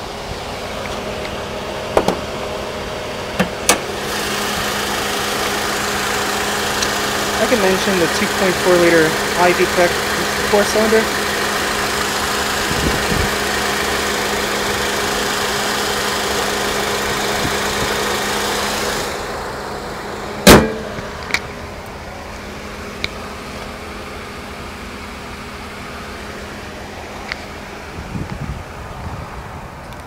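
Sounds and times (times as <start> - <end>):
car engine idling: 0.0 - 30.0
car hood slamming shut: 1.9 - 2.3, 20.4 - 21.2.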